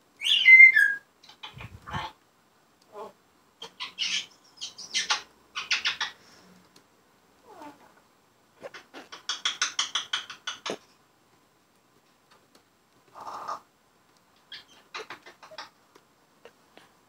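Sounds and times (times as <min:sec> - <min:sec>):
parrot chattering chirps and clicks: 0:08.7 - 0:10.8, 0:14.4 - 0:15.7.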